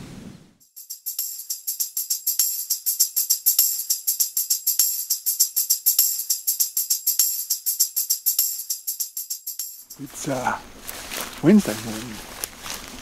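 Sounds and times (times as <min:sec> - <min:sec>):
fast jingling shake: 0:00.6 - 0:10.6.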